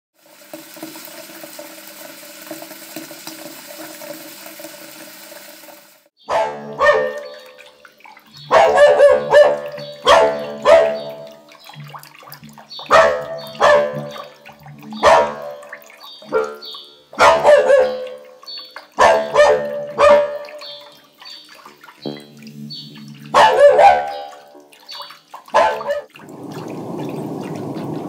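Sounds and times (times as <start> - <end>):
dogs barking: 6.3 - 7.6, 8.3 - 21.0, 23.0 - 26.1
sea waves washing on shore: 25.6 - 28.0.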